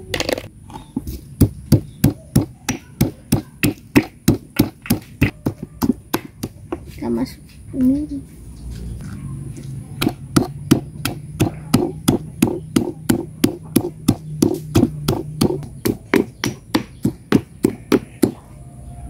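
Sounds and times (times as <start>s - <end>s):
pestle pounding in stone mortar: 0.4s - 7.0s, 10.0s - 18.4s.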